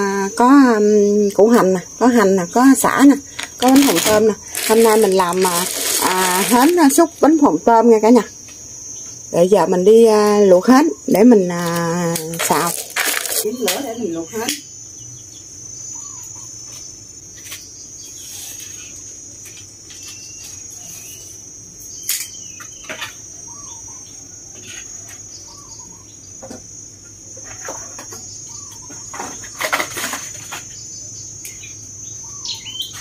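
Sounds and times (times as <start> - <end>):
cricket trill: 0.0 - 33.0
small birds chirping: 0.4 - 7.5, 13.3 - 19.2, 19.9 - 29.7, 30.5 - 33.0.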